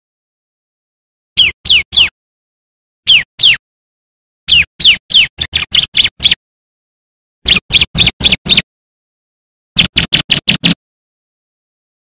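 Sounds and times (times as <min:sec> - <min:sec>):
bird chirping: 0:01.4 - 0:02.1, 0:03.0 - 0:03.6, 0:04.5 - 0:06.4, 0:07.4 - 0:08.7, 0:09.8 - 0:10.8.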